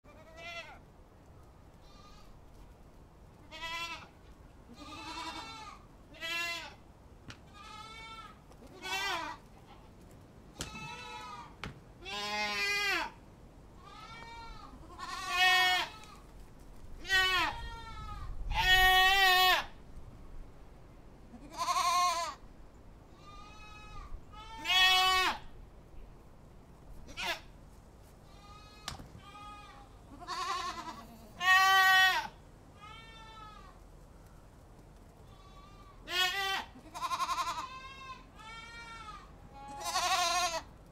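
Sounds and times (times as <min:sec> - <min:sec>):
goats bleating: 0:00.1 - 0:00.8, 0:03.4 - 0:04.1, 0:04.7 - 0:06.8, 0:07.5 - 0:09.9, 0:10.6 - 0:13.2, 0:13.8 - 0:16.2, 0:17.0 - 0:19.7, 0:21.3 - 0:22.4, 0:23.2 - 0:25.4, 0:27.1 - 0:27.5, 0:28.3 - 0:33.8, 0:35.3 - 0:40.7.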